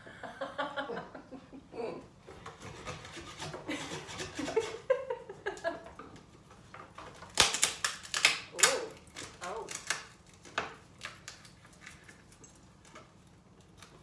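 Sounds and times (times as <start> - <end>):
screwdriver scraping cutting board: 2.4 - 4.8
soft laughter: 3.6 - 6.0.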